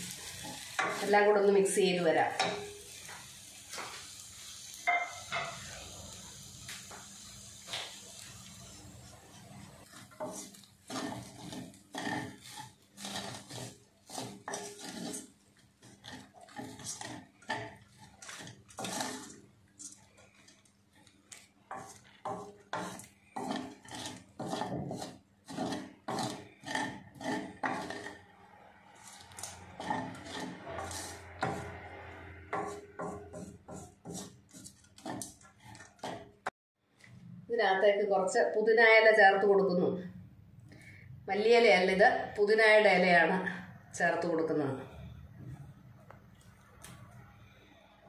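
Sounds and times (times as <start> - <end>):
wooden spoon scraping steel pan: 0.0 - 3.2, 8.3 - 36.5.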